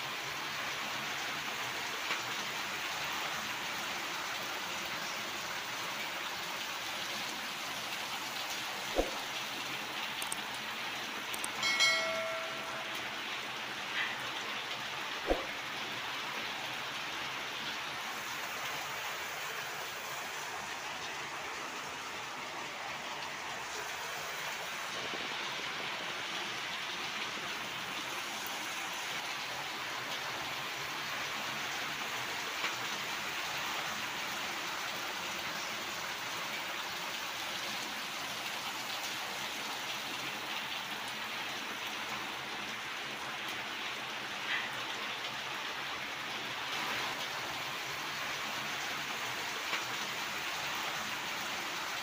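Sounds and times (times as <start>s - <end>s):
rain falling: 0.0s - 52.0s
faint clicks: 10.2s - 10.6s.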